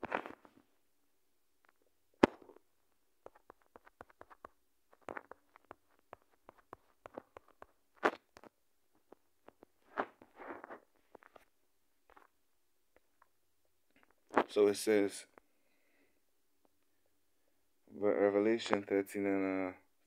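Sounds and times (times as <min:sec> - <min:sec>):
phone being handled: 0:03.2 - 0:11.5.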